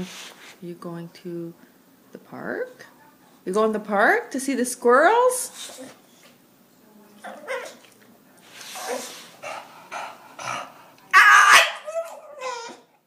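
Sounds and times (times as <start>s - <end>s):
dog vocalizing: 7.2s - 7.9s, 8.6s - 13.0s.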